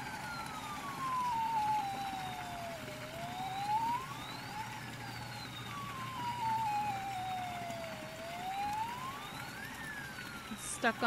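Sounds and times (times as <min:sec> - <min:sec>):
toy boat electronic siren wailing: 0:00.0 - 0:11.0.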